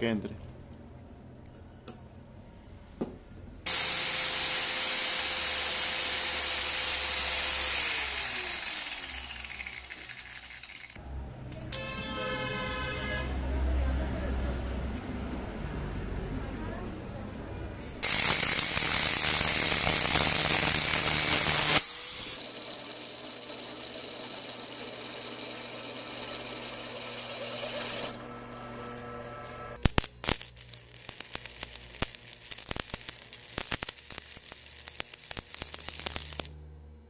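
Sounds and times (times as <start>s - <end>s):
angle grinder cutting steel: 3.7s - 11.0s, 18.0s - 30.4s, 31.0s - 36.5s
arc welder crackling: 3.7s - 11.0s, 18.0s - 36.6s
drill press humming: 3.7s - 11.0s, 18.0s - 29.8s.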